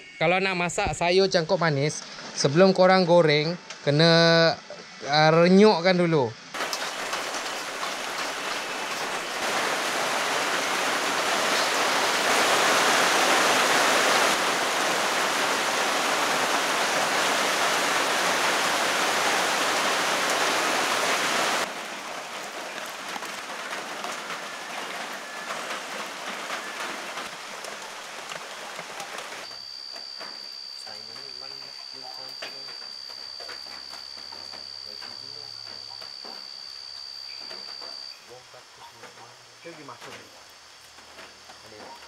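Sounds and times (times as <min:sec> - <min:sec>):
vegetables sizzling in oil: 0:06.6 - 0:38.1.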